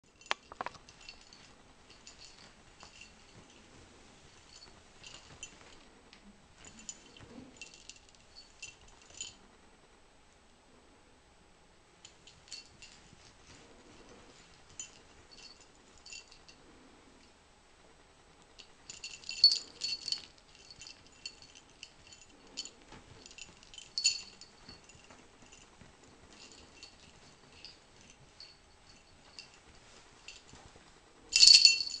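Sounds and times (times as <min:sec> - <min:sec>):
small bell jingling: 0:00.0 - 0:05.9, 0:06.6 - 0:09.4, 0:12.0 - 0:16.6, 0:18.6 - 0:32.0
fur rustling on blanket: 0:18.8 - 0:32.0.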